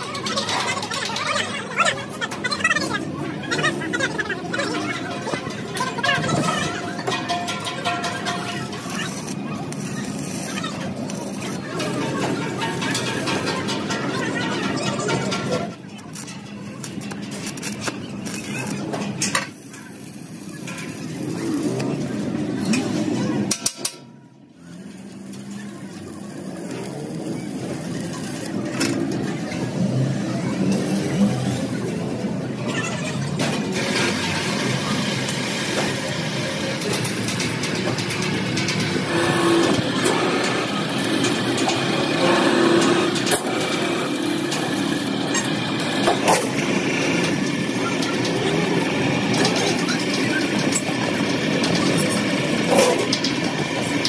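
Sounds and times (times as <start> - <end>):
workshop machinery noise: 0.0 - 54.0
welding arc crackling: 3.7 - 13.9, 16.1 - 32.1.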